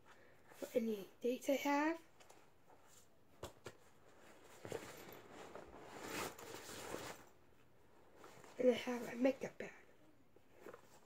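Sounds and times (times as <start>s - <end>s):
rustling in a bag: 3.9s - 9.5s.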